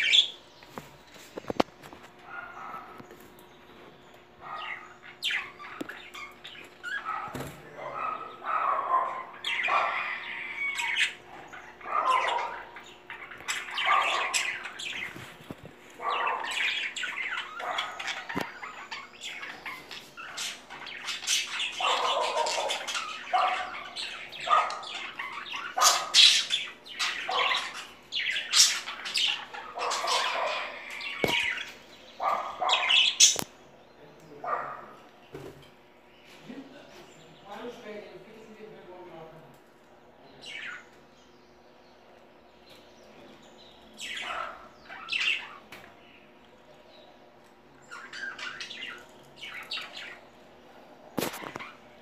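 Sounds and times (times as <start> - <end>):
budgerigars chattering: 0.0 - 0.4, 4.3 - 15.3, 15.9 - 35.0, 43.6 - 46.3, 47.8 - 50.4.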